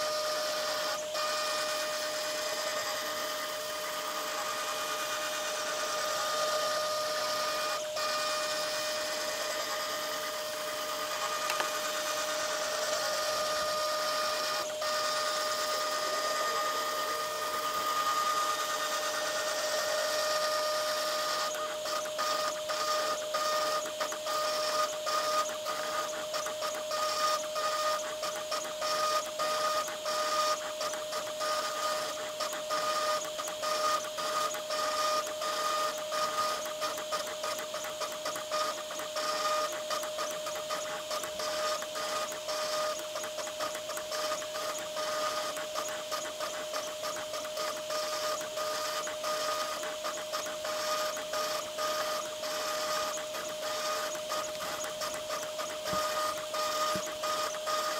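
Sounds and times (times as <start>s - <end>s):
spindle high whine: 0.0s - 23.8s
stepper motor clicks: 5.7s - 57.9s.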